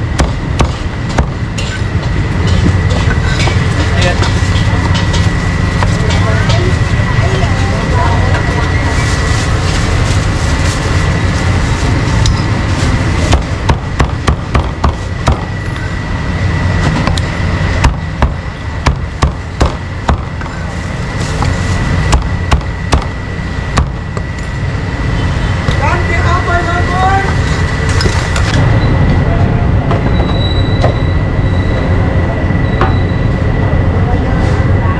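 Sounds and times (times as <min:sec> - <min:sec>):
cleaver chopping meat on wood: 0:00.2 - 0:01.4
low rumble: 0:27.3 - 0:34.9.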